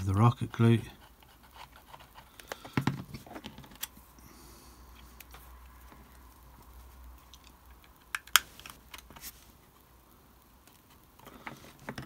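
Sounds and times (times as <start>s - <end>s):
faint handling noise: 4.9s - 9.9s.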